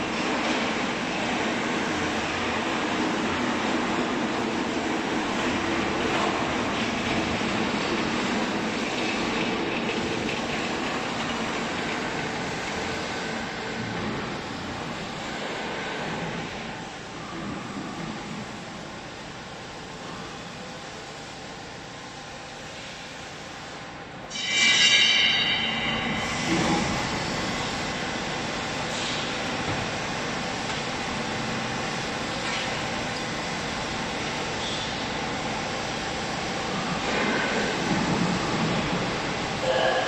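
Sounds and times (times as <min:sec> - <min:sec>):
workshop machinery running: 0:00.0 - 0:40.0
high whine: 0:24.3 - 0:28.4, 0:39.6 - 0:40.0.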